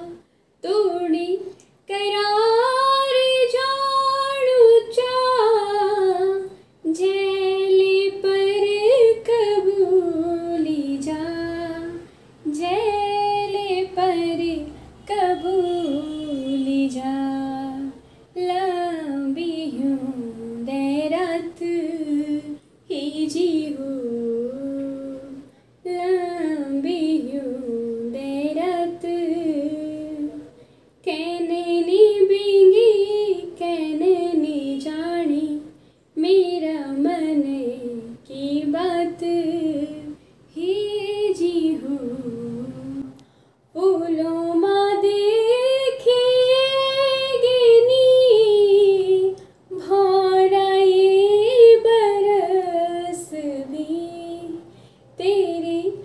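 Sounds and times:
woman singing unaccompanied: 0:00.0 - 0:56.0
singer breathing: 0:43.1 - 0:43.7, 0:54.6 - 0:55.2.

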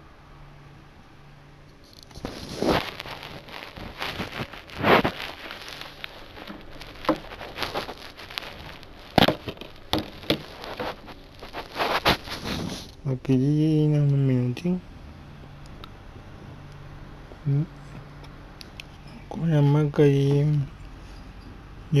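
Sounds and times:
handling rustling: 0:01.8 - 0:13.0.

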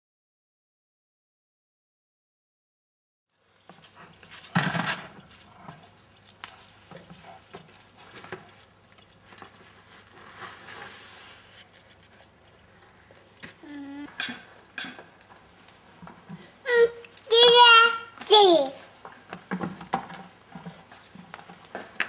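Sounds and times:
bucket knocking and scraping: 0:03.6 - 0:15.2, 0:19.1 - 0:22.0
plastic bucket clattering: 0:03.7 - 0:05.8, 0:19.3 - 0:22.0.

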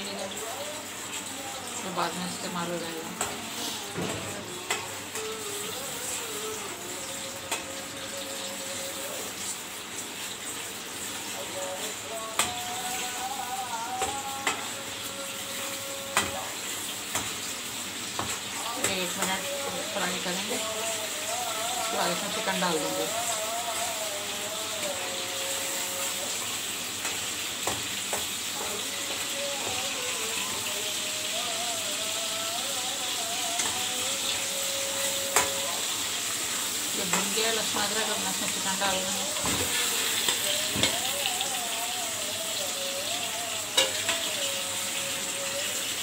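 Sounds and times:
paste sizzling in hot oil: 0:00.0 - 0:46.0
metal spoon clicking on pan: 0:43.8 - 0:44.1.

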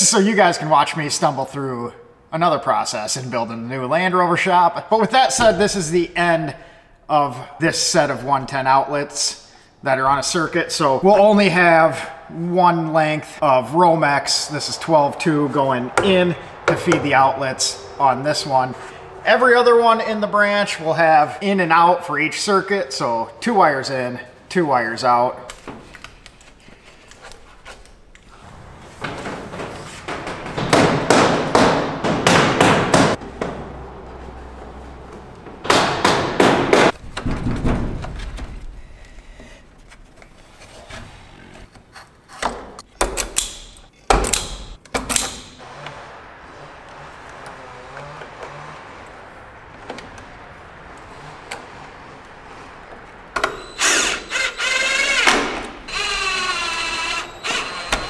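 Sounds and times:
cable rustling and scraping: 0:25.5 - 0:30.6, 0:36.9 - 0:42.8
cordless drill whirring: 0:53.4 - 0:58.0.

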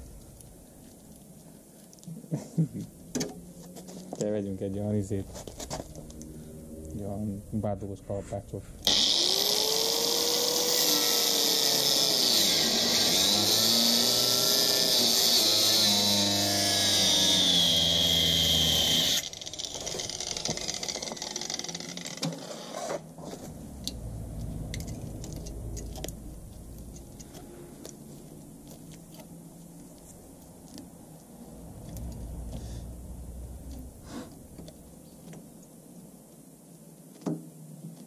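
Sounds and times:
angle grinder grinding steel: 0:08.8 - 0:29.3.

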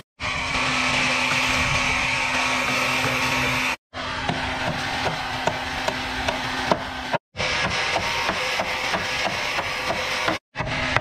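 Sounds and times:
sawmill background noise: 0:00.0 - 0:11.0
wood being struck: 0:04.2 - 0:10.4.

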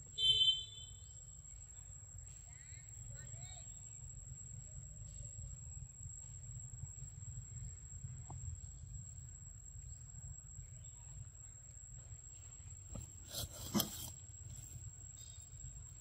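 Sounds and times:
brief rustle: 0:12.9 - 0:14.2.

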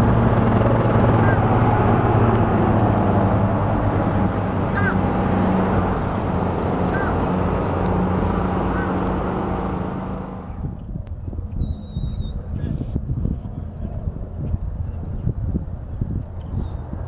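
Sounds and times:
light aircraft engine droning: 0:00.0 - 0:17.0
bird chirping: 0:10.8 - 0:13.9.

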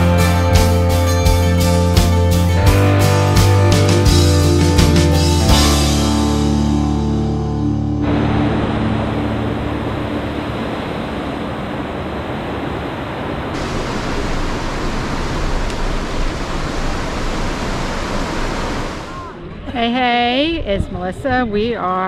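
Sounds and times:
river rushing over rocks: 0:08.0 - 0:19.2.

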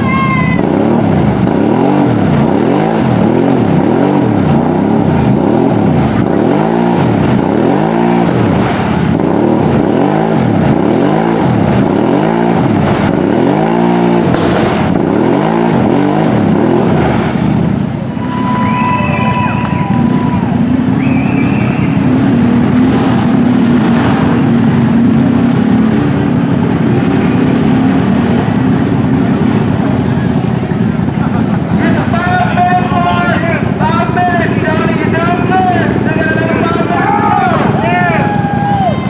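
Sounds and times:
atv engine revving: 0:00.0 - 0:39.0.

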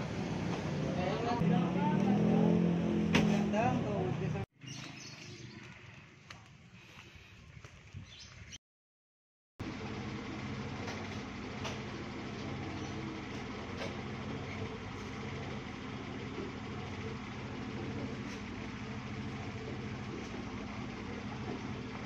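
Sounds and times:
engine idling: 0:09.6 - 0:22.0.

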